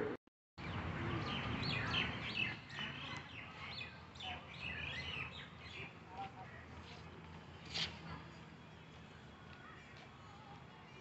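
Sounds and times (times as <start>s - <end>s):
birds chirping: 0.6s - 11.0s.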